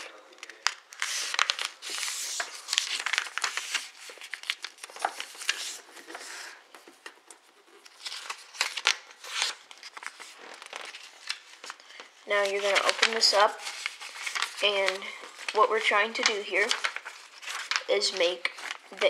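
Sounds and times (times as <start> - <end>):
paper rustling as folded: 0.0 - 19.0
fingers stroking paper crease: 7.8 - 19.0.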